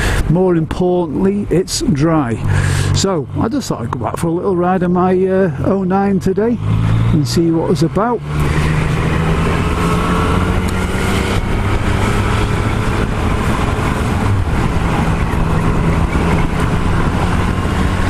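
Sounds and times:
motorcycle engine running: 2.4 - 18.0
wind noise: 8.2 - 18.0.

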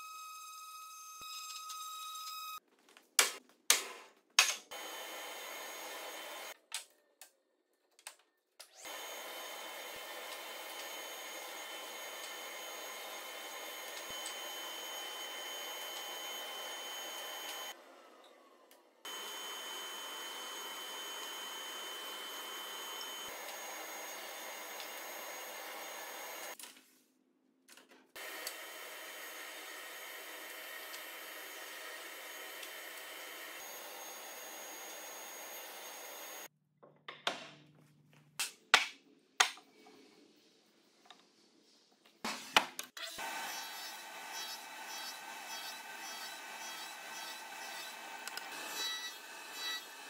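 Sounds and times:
table saw running: 4.7 - 6.6, 8.8 - 18.2, 19.1 - 26.6, 28.2 - 36.5, 43.2 - 50.0.

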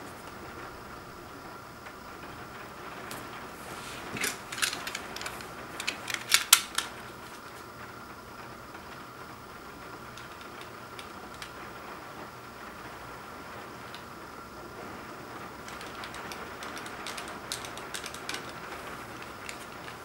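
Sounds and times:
plastic shrink wrap crinkling: 3.7 - 7.7, 15.6 - 20.0.

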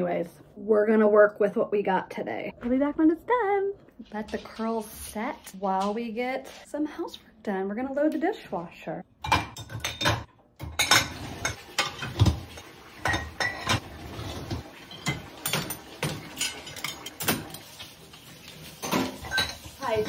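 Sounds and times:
dishes and glasses clinking: 9.2 - 17.7, 18.8 - 20.0.

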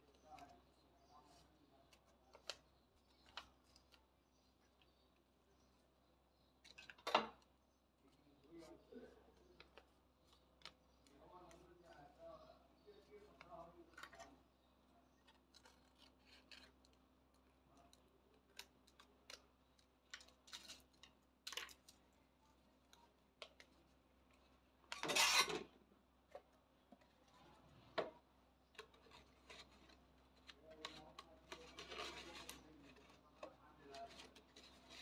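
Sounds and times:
scraping paper rustle: 28.8 - 35.0.

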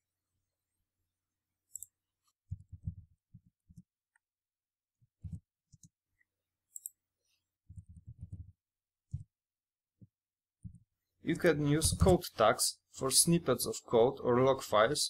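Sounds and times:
keyboard typing: 7.7 - 8.5.

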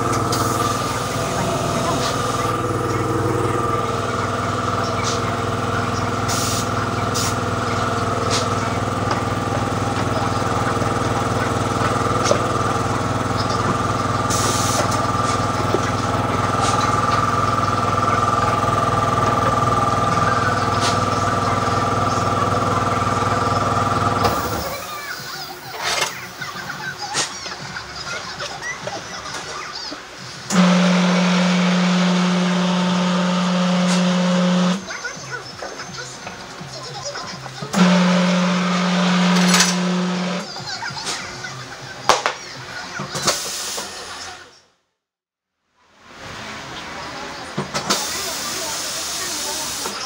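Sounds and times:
air compressor running: 0.0 - 27.8, 30.1 - 41.6, 43.1 - 44.5, 47.6 - 50.0
short air hisses: 6.3 - 7.4, 43.3 - 44.0.

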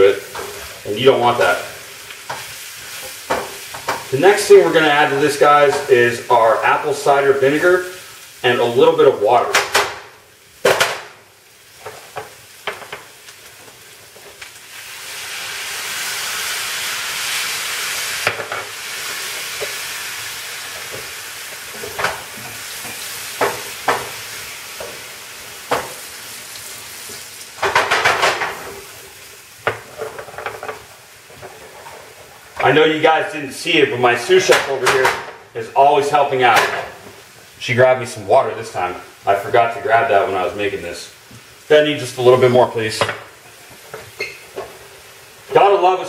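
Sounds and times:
vinegar sizzling in a hot pan: 0.0 - 46.0
utensil scraping a frying pan: 11.7 - 32.8, 43.3 - 45.6.

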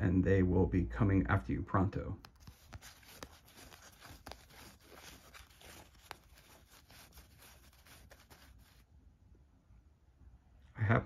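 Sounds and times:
card edges ticking: 2.2 - 8.5
paper cards rustling: 2.2 - 8.8.

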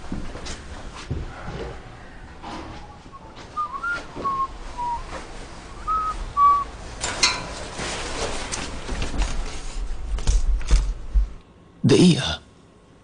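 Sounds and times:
person whistling a tune: 3.1 - 5.1, 5.8 - 6.7
rustling: 3.4 - 11.4.

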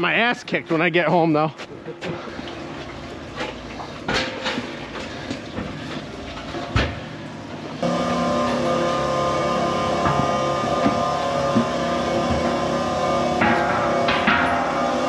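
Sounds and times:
metal hand truck rattling: 10.0 - 15.0.

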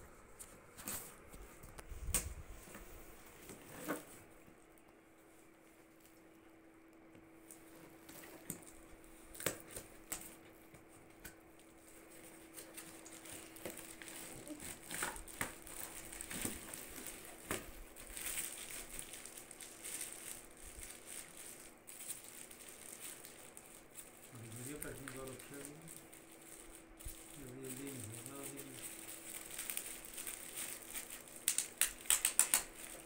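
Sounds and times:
plastic wrapping crinkling: 7.3 - 33.0.

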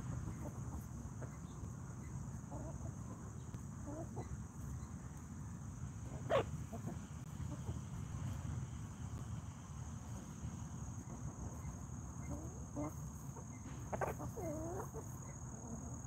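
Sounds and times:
hens clucking: 0.1 - 1.8, 2.4 - 4.8, 6.0 - 8.0, 11.0 - 16.0.

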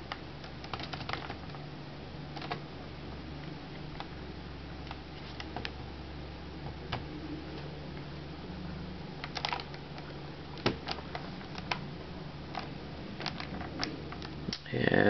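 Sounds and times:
keyboard keys clicking: 0.0 - 1.6, 2.4 - 2.6, 9.2 - 11.8, 12.5 - 14.4
low hum: 0.0 - 15.0.

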